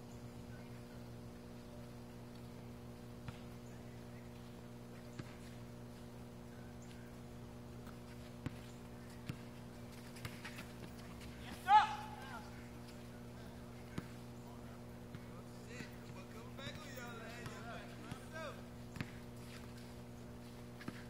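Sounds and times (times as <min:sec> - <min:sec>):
steady low hum: 0:00.0 - 0:21.0
basketball bouncing: 0:07.8 - 0:11.4, 0:16.0 - 0:18.3, 0:18.9 - 0:19.8.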